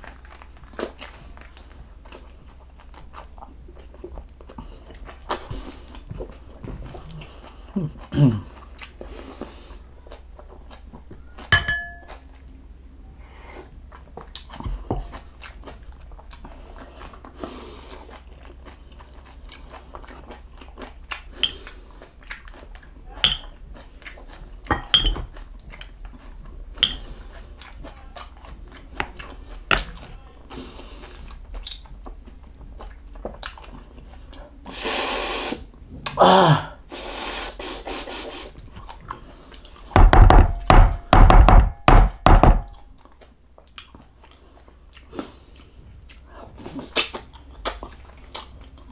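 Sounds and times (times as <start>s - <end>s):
person chewing: 0.0s - 12.6s, 13.6s - 40.0s, 42.7s - 48.9s
cutlery clinking on bowl: 11.5s - 12.2s, 23.2s - 23.6s, 24.7s - 25.3s, 26.8s - 27.1s.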